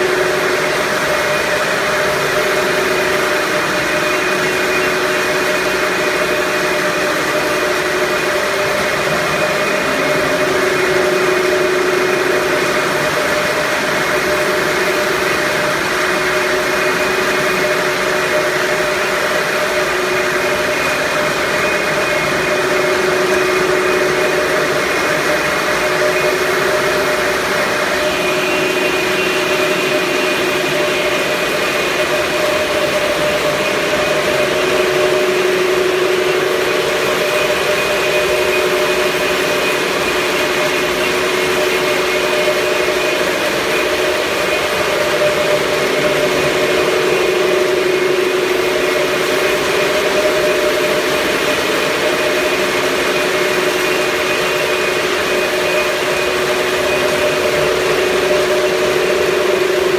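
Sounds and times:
steady mechanical hum: 0.0s - 59.9s.

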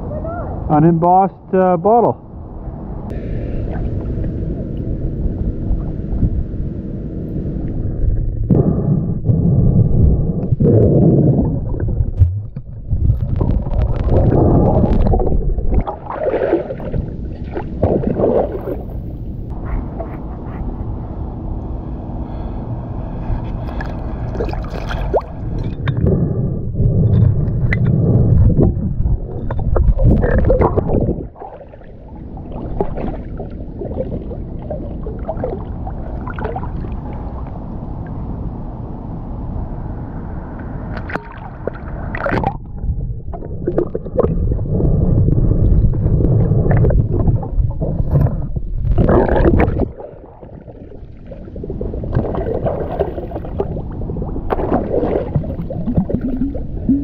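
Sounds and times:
muffled underwater rumbling: 2.2s - 39.0s, 39.9s - 57.0s
river water sloshing and gurgling: 11.0s - 20.6s, 23.4s - 26.1s, 27.1s - 37.6s, 40.9s - 44.9s, 45.6s - 57.0s
light water splashes: 23.6s - 26.0s.

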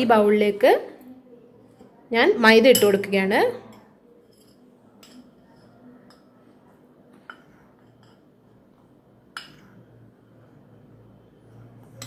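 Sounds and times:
teaspoon clinking on metal bowl: 2.7s - 3.1s.

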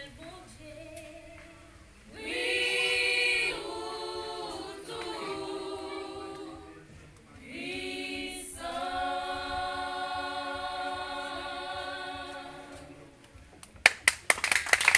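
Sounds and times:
women's choir singing: 2.1s - 13.2s
people clapping: 13.6s - 14.9s.

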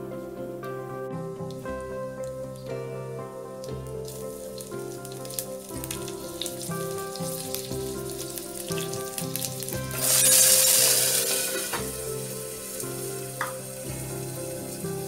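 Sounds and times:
seeds crackling in hot oil: 3.6s - 15.0s
vegetables sizzling in a pan: 4.0s - 15.0s.

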